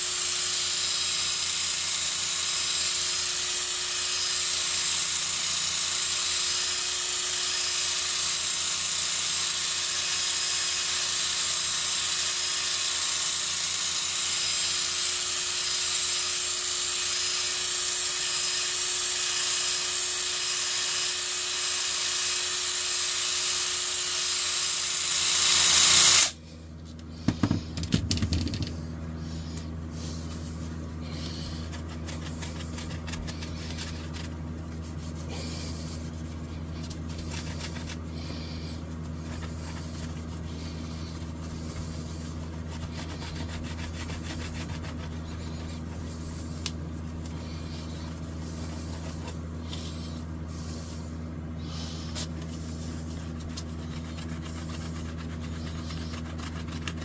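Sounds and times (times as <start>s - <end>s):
drill motor whine with buffing hiss: 0.0s - 26.4s.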